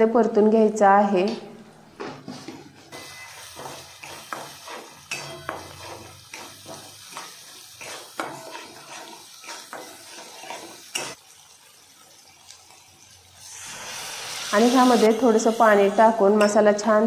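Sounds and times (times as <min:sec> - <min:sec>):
metal spatula scraping pan: 0:02.9 - 0:11.2.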